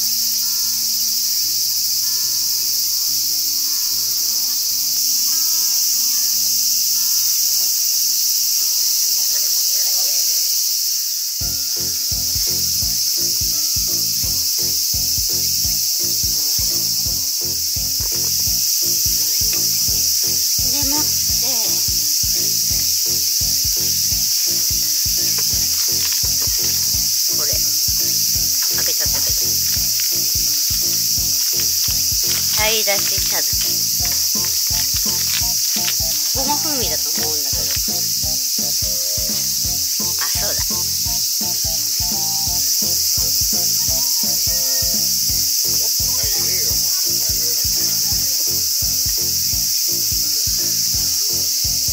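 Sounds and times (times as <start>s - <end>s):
crickets and insects chirping: 0.0s - 51.9s
background music with beat: 11.4s - 51.9s.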